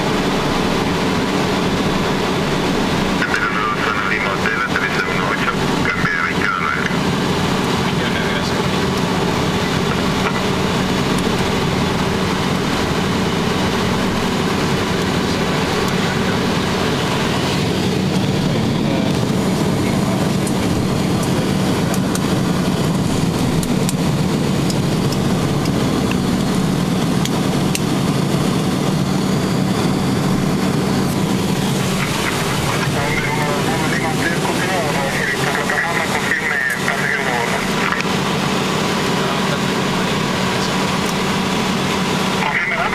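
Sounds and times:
turboprop engines droning: 0:00.0 - 0:42.9.

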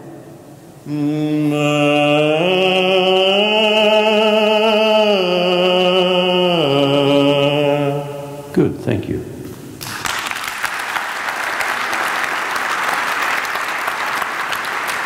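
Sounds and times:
man singing a long vowel: 0:00.0 - 0:08.5.

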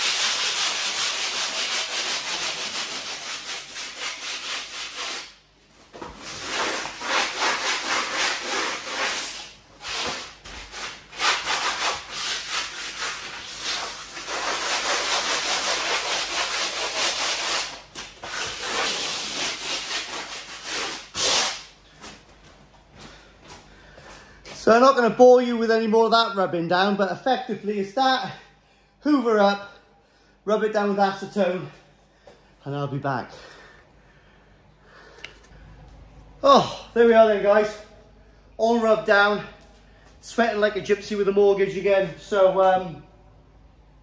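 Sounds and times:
sandpaper scratching on wall: 0:00.0 - 0:05.4, 0:06.1 - 0:21.7.

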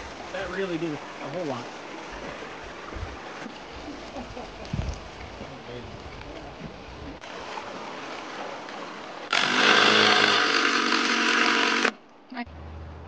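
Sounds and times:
cordless drill driving screw into wood: 0:09.3 - 0:12.0.

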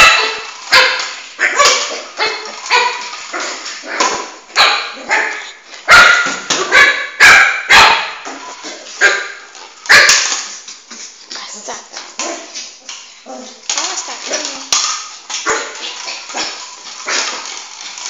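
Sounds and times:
puppy barking: 0:00.0 - 0:08.3, 0:09.0 - 0:10.3, 0:15.4 - 0:17.3.

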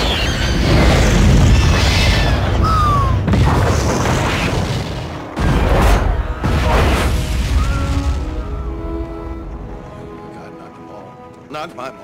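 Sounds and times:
explosion burst: 0:00.0 - 0:08.3
explosion rumble: 0:00.0 - 0:08.6.

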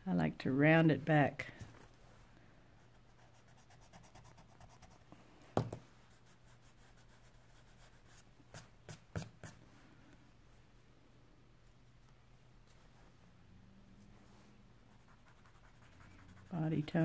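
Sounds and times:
pencil scratching on paper: 0:03.1 - 0:05.0, 0:15.0 - 0:17.0.

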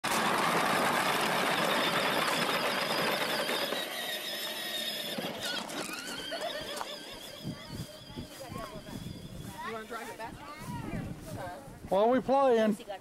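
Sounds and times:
plastic wheels crunching over gravel: 0:00.0 - 0:11.3
small electric motor whirring: 0:01.0 - 0:10.0.

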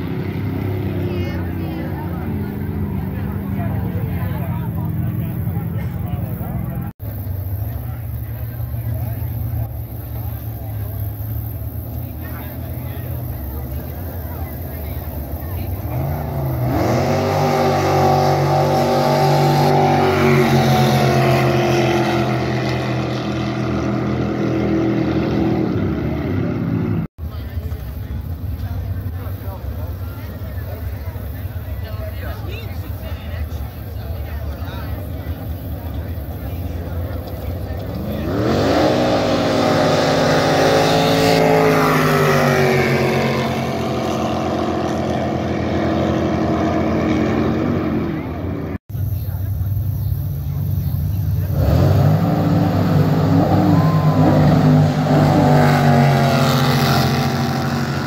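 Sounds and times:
boat engine at high revs: 0:00.0 - 0:58.0.

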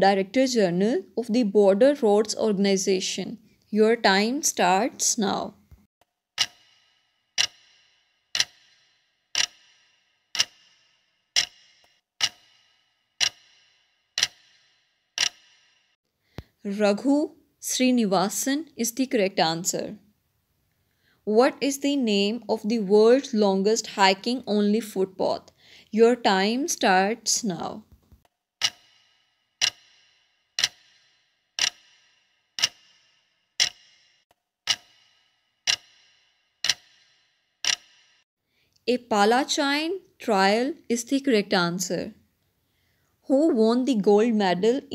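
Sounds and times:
clock ticking: 0:06.4 - 0:15.8, 0:28.6 - 0:38.2.

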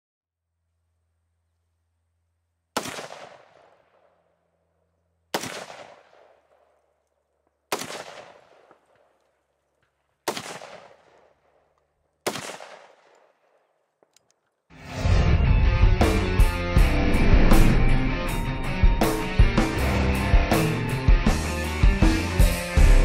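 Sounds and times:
rifle shots with echo: 0:02.8 - 0:04.4, 0:05.3 - 0:07.0, 0:07.7 - 0:09.4, 0:10.2 - 0:13.8.

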